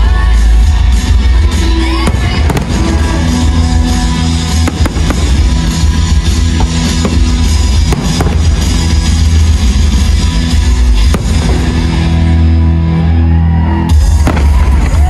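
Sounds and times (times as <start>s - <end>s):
loud music: 0.0s - 15.0s
firework shells bursting: 2.1s - 10.2s.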